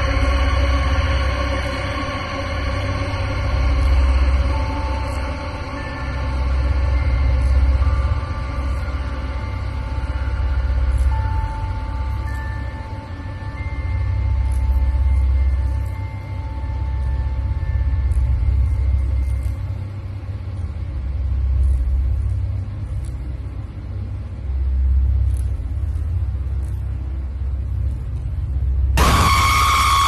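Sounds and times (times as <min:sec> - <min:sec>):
low rumble: 0:00.0 - 0:30.0
high screeching scream: 0:29.0 - 0:30.0.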